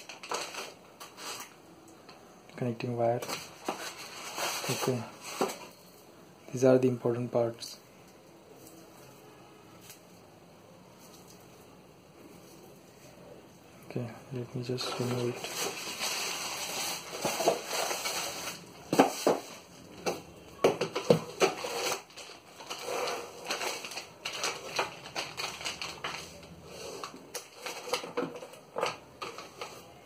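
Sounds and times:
plastic packaging crinkling: 0:00.0 - 0:01.6, 0:03.1 - 0:05.8, 0:14.6 - 0:19.7, 0:20.6 - 0:30.0.

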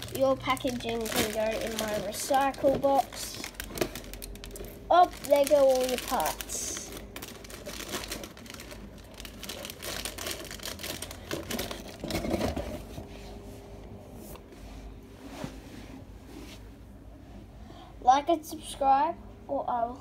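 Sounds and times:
plastic packaging crinkling: 0:00.0 - 0:12.4.

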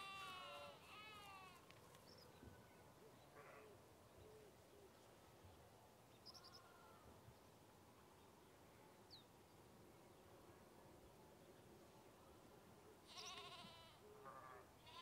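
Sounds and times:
faint bleat: 0:00.0 - 0:01.6, 0:06.5 - 0:07.1, 0:13.0 - 0:15.0.

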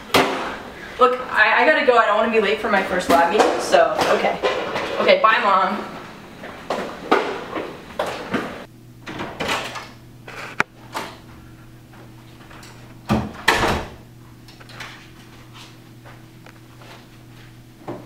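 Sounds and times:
low room hum: 0:00.0 - 0:18.0
footsteps: 0:05.8 - 0:08.7.

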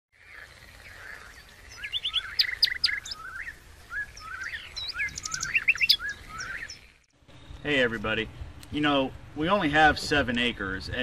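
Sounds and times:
songbirds chirping: 0:00.2 - 0:11.0.

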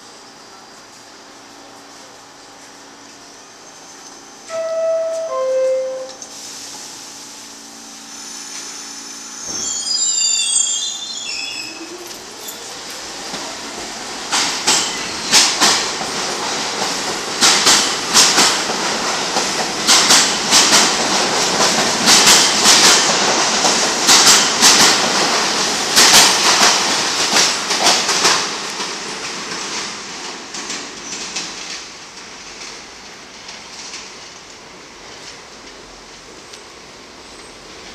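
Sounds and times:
subway train rumble: 0:00.0 - 0:37.9
train wheels clicking over rail joints: 0:12.0 - 0:36.6.

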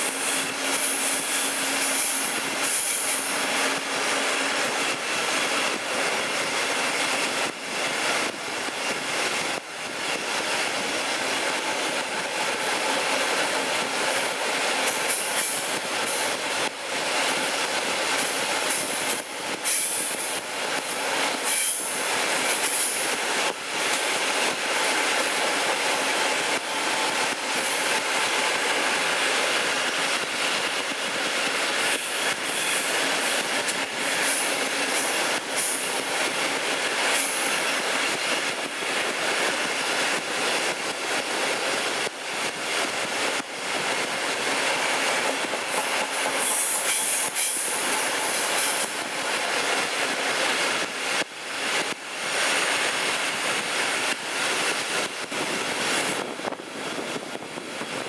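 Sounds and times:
train wheels squealing: 0:00.0 - 0:03.4, 0:21.4 - 0:23.0, 0:31.8 - 0:33.4, 0:46.4 - 0:49.0
train rumbling on track: 0:00.0 - 0:58.0.

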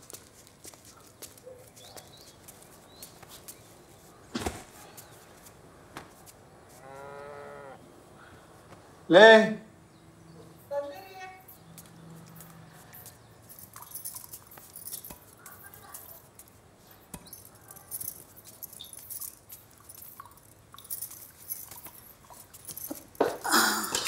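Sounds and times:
light metallic jingles: 0:10.2 - 0:24.0.

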